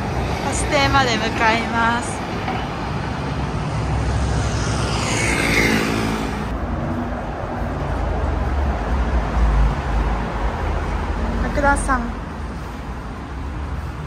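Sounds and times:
busy road traffic: 0.0s - 14.0s
car passing close by: 1.9s - 6.6s
low rumble: 1.9s - 7.5s.

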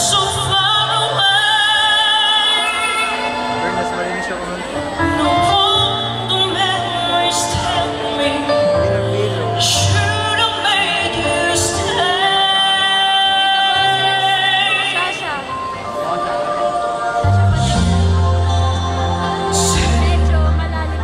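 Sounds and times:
woman singing into microphone: 0.0s - 3.5s, 5.0s - 21.0s
instrumental accompaniment: 0.0s - 21.0s
steady bass line: 17.2s - 21.0s.

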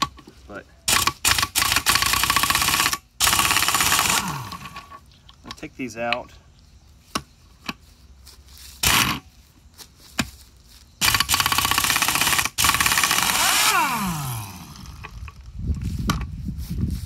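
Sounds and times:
pneumatic wrench rattling: 0.9s - 5.0s, 8.8s - 9.2s, 11.0s - 15.5s
air tool motor winding down: 11.0s - 15.2s.

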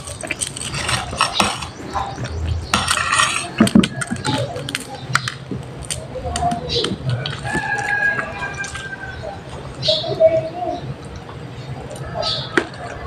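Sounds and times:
fork and spoon scraping a plate: 0.0s - 4.5s.

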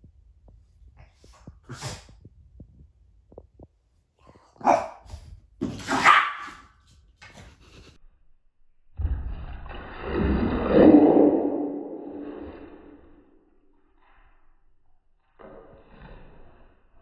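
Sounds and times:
small dogs barking: 5.9s - 6.6s.

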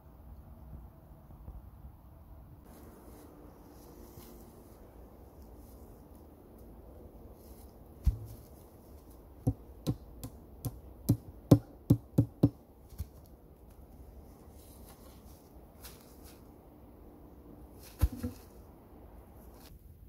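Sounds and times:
hatchet chopping log: 9.4s - 12.6s.

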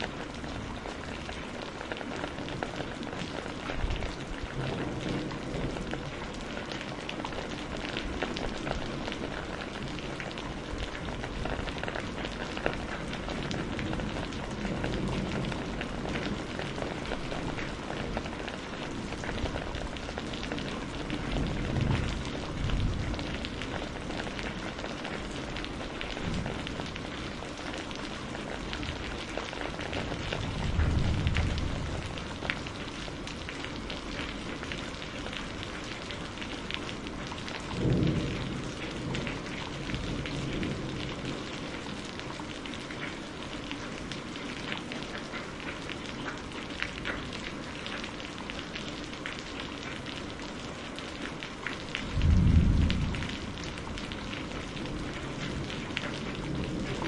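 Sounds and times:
rain pattering: 0.0s - 57.0s
thunder rumble: 28.3s - 33.9s, 37.6s - 41.5s, 52.1s - 57.0s.

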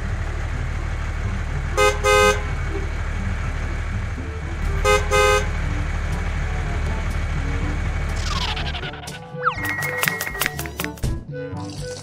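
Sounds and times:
steady low hum: 0.0s - 9.2s
toy horn honking: 1.7s - 2.8s, 4.4s - 10.6s.

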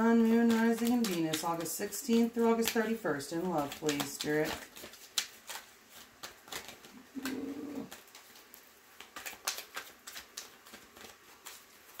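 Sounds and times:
cards being shuffled by hand: 0.0s - 12.0s
coo-like tone: 7.0s - 7.9s.

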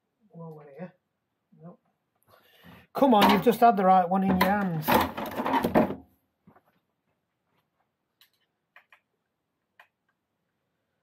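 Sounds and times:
hand tools clattering: 3.1s - 3.6s.

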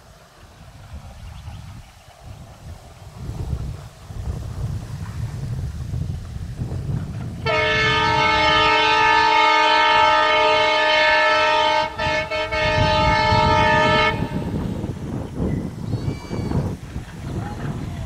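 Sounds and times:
locomotive air horn blast: 7.4s - 14.9s.

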